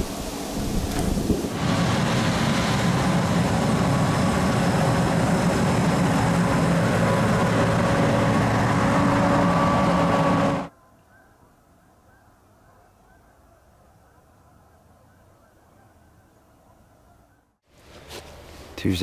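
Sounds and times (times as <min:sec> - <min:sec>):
harvesting machine engine drone: 0:00.9 - 0:10.7.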